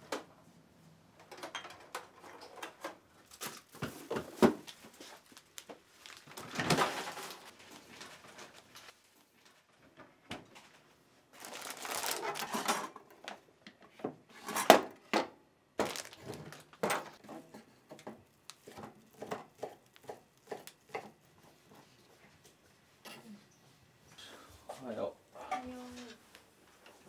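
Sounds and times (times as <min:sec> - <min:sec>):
kitchen things clattering: 0:01.2 - 0:04.5, 0:11.9 - 0:21.2
plastic bag crinkling: 0:04.7 - 0:08.9, 0:11.3 - 0:13.0, 0:15.8 - 0:16.9.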